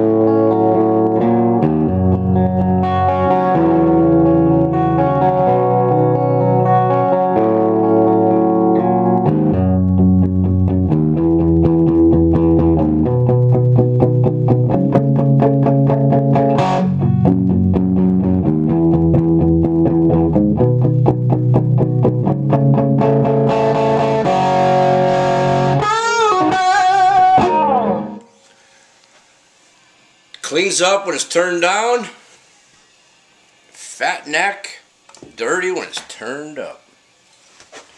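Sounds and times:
electric guitar through amp: 0.0 - 28.6.

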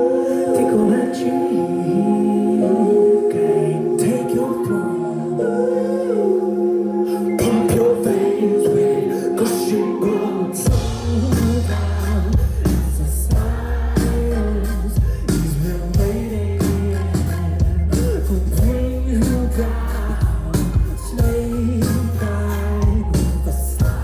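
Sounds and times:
man singing: 0.0 - 24.0
live band playing: 7.1 - 24.0
deep bass line: 10.7 - 24.0.

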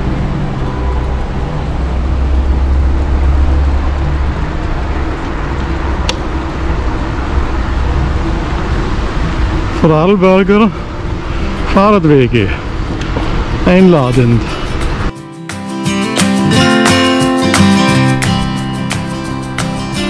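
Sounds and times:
wind noise on microphone: 12.5 - 15.1.

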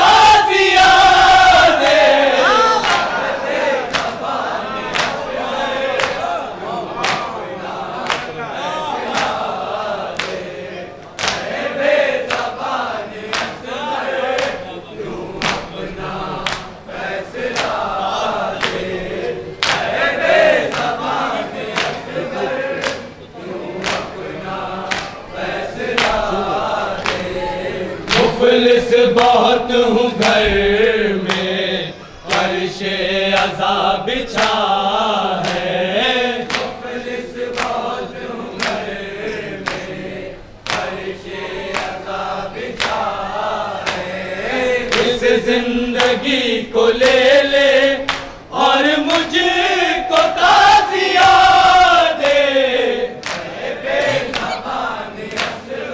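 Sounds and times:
men chanting in unison: 0.0 - 55.9
hands slapping chests: 9.1 - 9.4, 11.2 - 11.5, 15.4 - 15.7, 16.4 - 16.7, 19.6 - 19.9, 23.8 - 24.1, 24.9 - 25.2, 35.4 - 35.7, 36.5 - 36.7.

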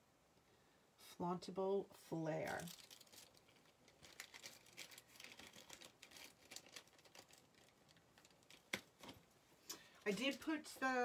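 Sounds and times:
faint crinkling: 2.4 - 11.0.

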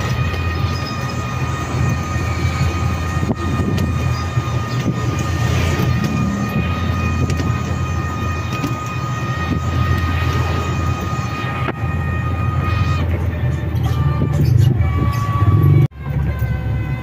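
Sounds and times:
wind on microphone: 1.6 - 11.8.

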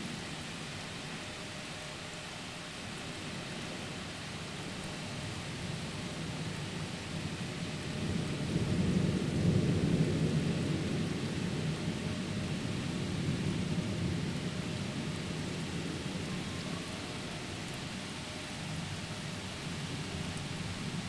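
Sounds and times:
rain hiss: 0.0 - 21.0
rolling thunder: 7.8 - 17.2.

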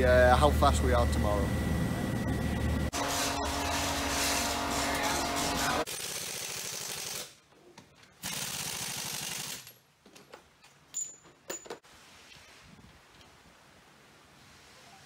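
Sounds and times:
pneumatic impact wrench rattling: 5.9 - 7.3, 8.2 - 9.8
metallic clinks and knocks: 9.6 - 11.8.

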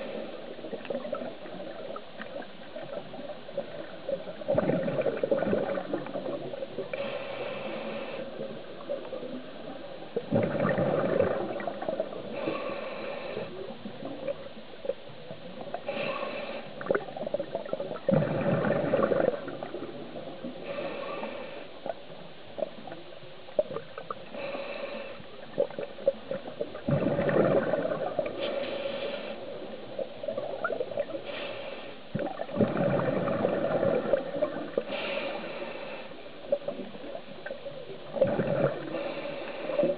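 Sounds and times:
bubbling exhaled air: 4.4 - 7.2, 10.2 - 13.6, 15.9 - 21.5, 24.0 - 31.5, 32.1 - 35.9, 38.1 - 39.9
scuba regulator hissing inhalation: 28.3 - 29.7, 34.8 - 36.2.

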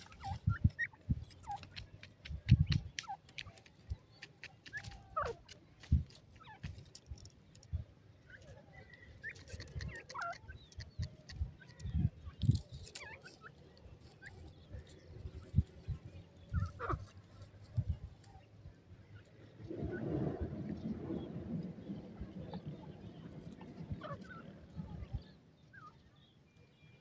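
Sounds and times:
francolin clucking: 0.0 - 7.7, 8.3 - 18.2.

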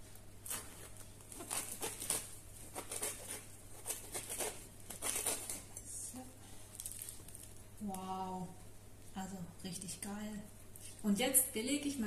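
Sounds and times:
knife crunching through bread crust: 0.4 - 5.8, 6.7 - 7.6.

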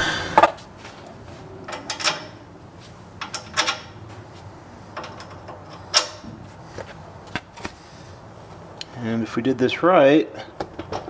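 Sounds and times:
clicks and knocks of car parts: 3.2 - 4.0, 4.9 - 7.8, 10.4 - 11.0.

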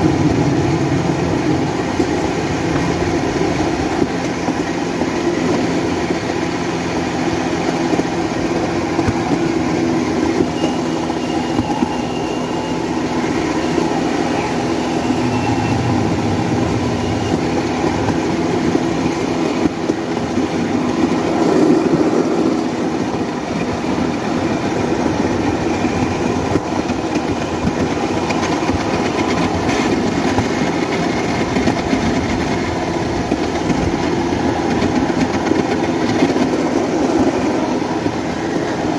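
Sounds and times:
rollers rattling on rails: 0.0 - 38.9
motorcycle engine running: 13.0 - 20.8.

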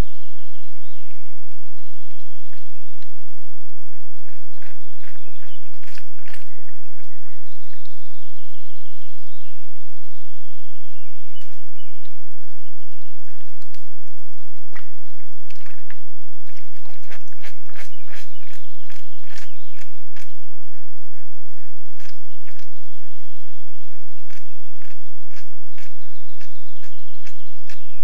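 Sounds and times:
hooves squelching in mud: 3.9 - 8.3.

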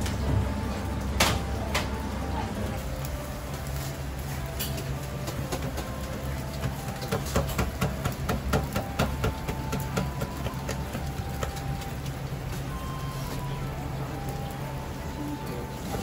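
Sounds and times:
low machine hum: 0.0 - 6.9
kitchen clacks and knocks: 6.7 - 10.3.

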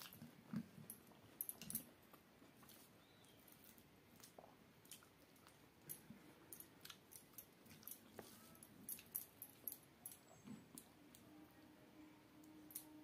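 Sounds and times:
chewing and mouth smacks: 1.5 - 8.3.

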